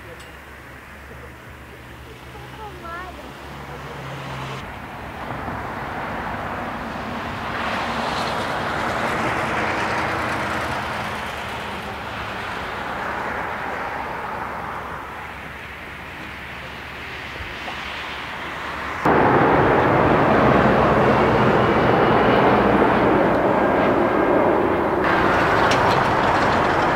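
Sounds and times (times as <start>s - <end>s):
jet engine roar: 2.1s - 26.9s.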